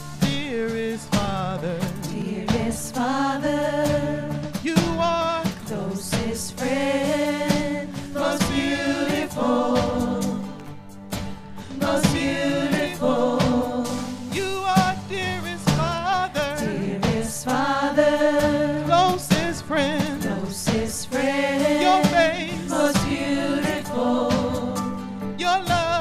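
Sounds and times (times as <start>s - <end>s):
instrumental backing music: 0.0s - 26.0s
women singing gospel: 2.0s - 4.6s, 5.4s - 10.8s, 11.5s - 14.4s, 16.4s - 25.0s.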